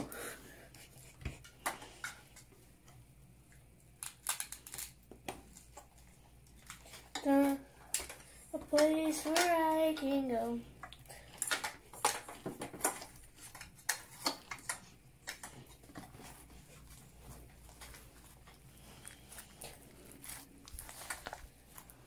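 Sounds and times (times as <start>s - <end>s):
slime squelching by hand: 12.8s - 22.0s.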